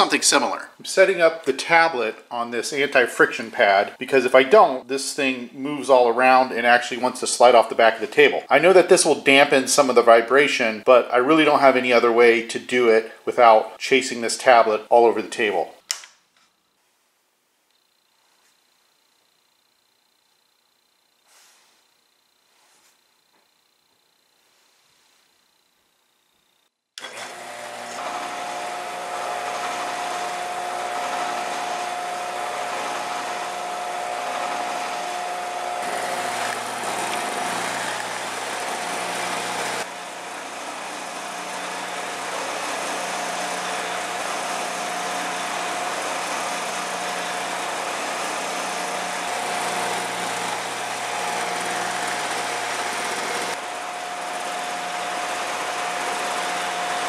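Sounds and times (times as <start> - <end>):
woodworking machine whining: 27.0 - 57.0.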